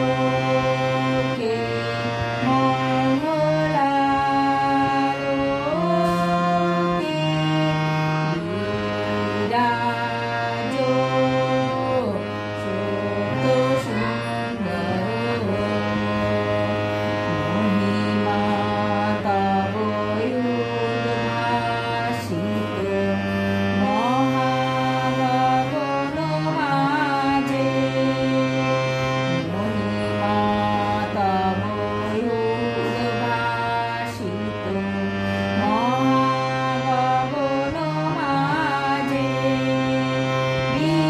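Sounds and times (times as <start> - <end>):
background song: 0.0 - 41.0.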